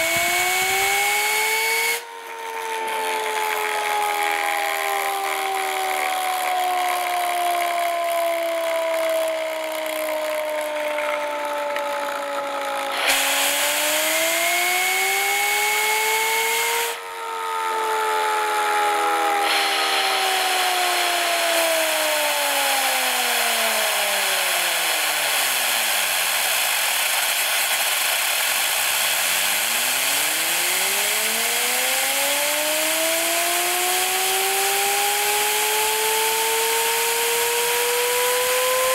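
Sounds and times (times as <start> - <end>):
spinning rotor whine: 0.0 - 38.9
hiss of compressed air: 13.0 - 14.4, 19.4 - 32.0.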